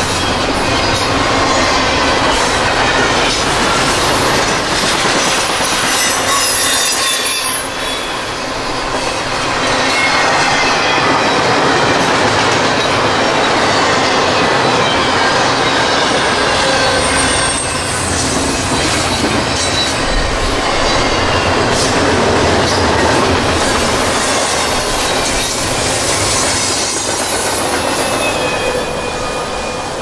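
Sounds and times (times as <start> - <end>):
train wheels clacking on rails: 0.0 - 30.0
faint high wheel squeal: 5.9 - 11.0, 14.7 - 20.0, 27.8 - 30.0.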